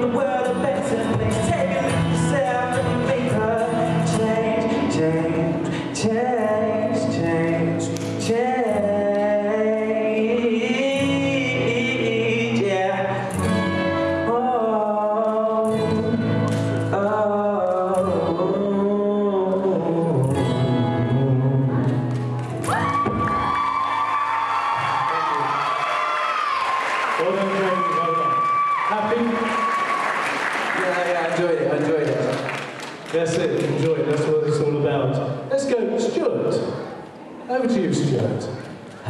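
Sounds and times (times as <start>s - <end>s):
man singing into microphone: 0.0s - 22.2s
instrumental backing music: 0.0s - 24.4s.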